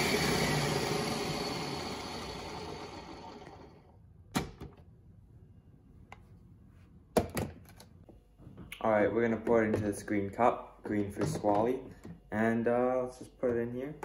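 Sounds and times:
blender motor winding down: 0:00.0 - 0:03.9.

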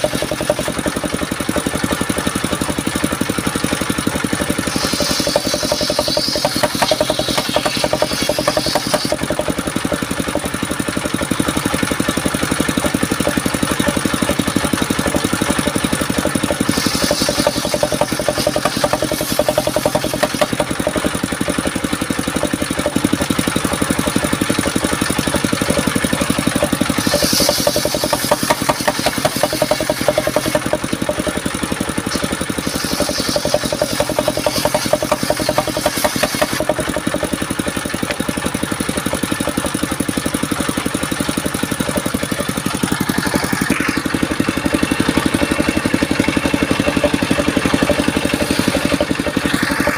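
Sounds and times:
saw blade ripping timber: 0:00.0 - 0:01.1, 0:04.5 - 0:09.7, 0:15.3 - 0:21.5, 0:25.3 - 0:38.2, 0:45.4 - 0:49.9
circular saw engine running: 0:00.0 - 0:49.9.

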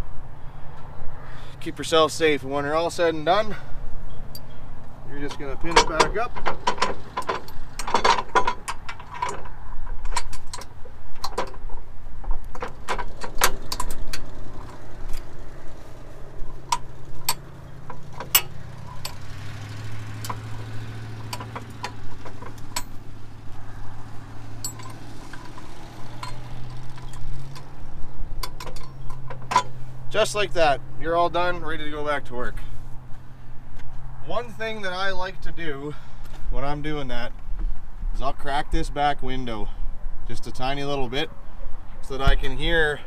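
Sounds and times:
metal pin clinking: 0:16.3 - 0:27.8.

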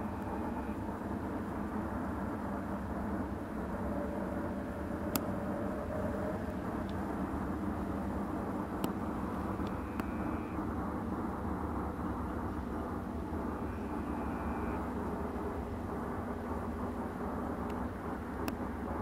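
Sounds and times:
low outdoor rumble: 0:00.0 - 0:19.0
faint high whistle: 0:13.6 - 0:14.9.

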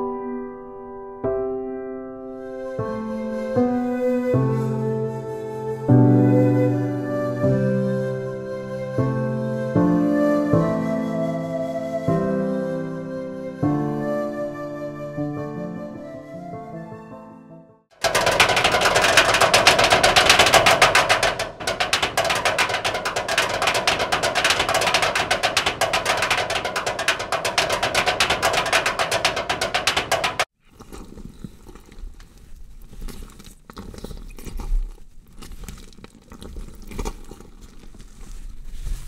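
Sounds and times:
rapid percussive rattle: 0:18.0 - 0:30.5
faint rustles: 0:30.6 - 0:39.0.

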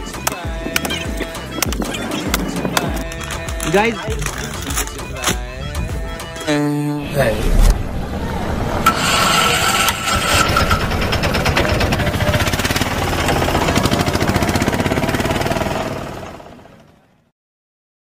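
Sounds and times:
engine running with fast pulse: 0:07.8 - 0:17.3.

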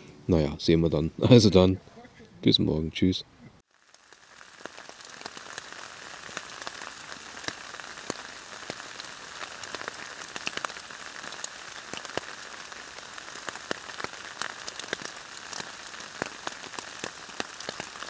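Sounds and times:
steady rain: 0:03.7 - 0:18.0.

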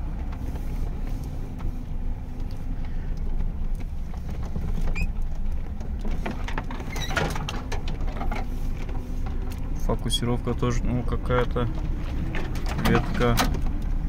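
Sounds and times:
body creaks and rattles: 0:00.0 - 0:10.2, 0:11.2 - 0:14.0
car engine and road rumble: 0:00.0 - 0:14.0
short squeaks: 0:04.8 - 0:05.2, 0:06.8 - 0:07.5.

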